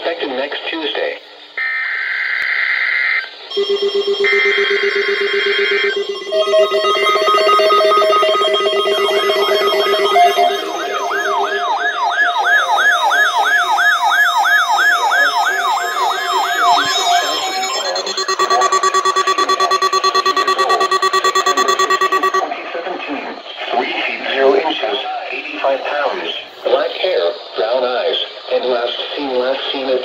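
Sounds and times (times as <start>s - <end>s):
pulsing alarm beeps: 3.5s - 22.6s
digital data tones: 5.7s - 22.6s
warbling siren tone: 5.8s - 22.5s.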